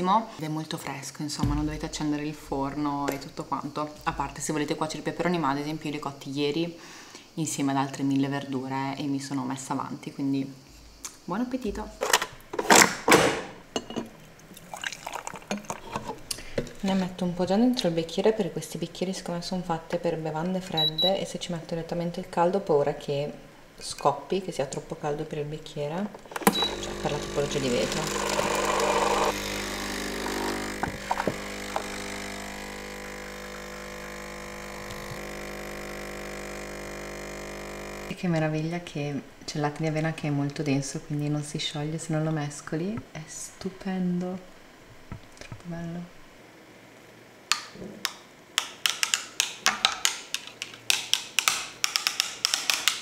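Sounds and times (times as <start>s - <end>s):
coffee pouring into glass: 14.5s - 15.9s
coffee machine pump humming: 25.9s - 38.2s.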